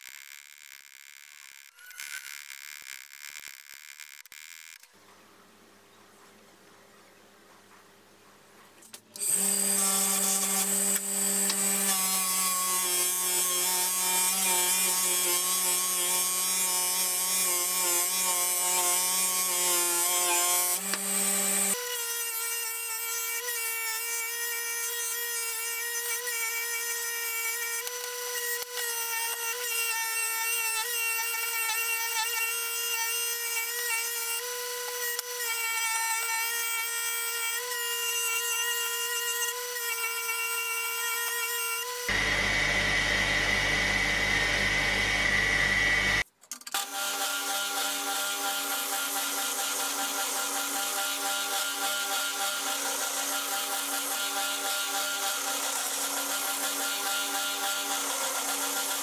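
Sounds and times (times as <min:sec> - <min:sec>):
electric motor whine: 0:09.2 - 0:15.7, 0:20.0 - 0:21.8, 0:41.9 - 0:46.2.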